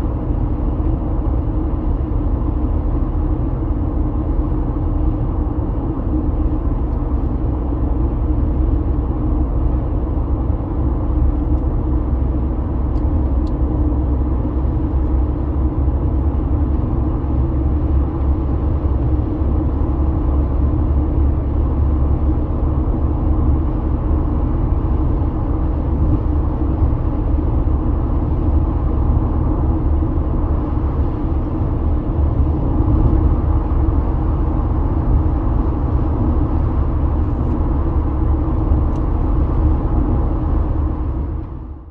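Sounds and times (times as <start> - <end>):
tyre and road noise in car: 0.0 - 41.9.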